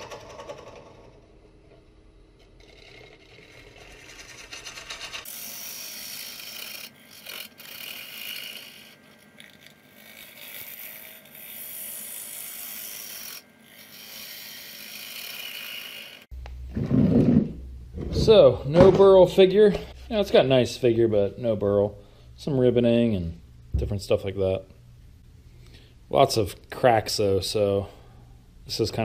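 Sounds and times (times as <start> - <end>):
gouge scraping spinning wood: 2.4 - 18.3.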